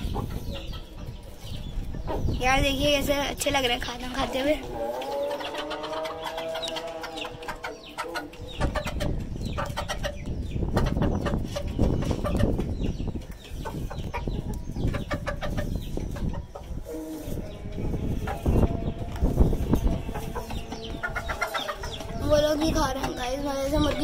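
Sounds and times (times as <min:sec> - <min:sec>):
chickens clucking: 0:00.0 - 0:24.0
chickens pecking at grain: 0:04.7 - 0:17.4, 0:18.0 - 0:23.2.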